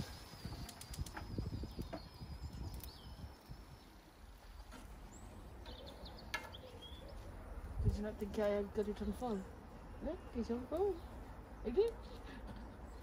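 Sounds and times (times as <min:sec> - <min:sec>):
sausages crackling on grill: 0:00.0 - 0:05.7.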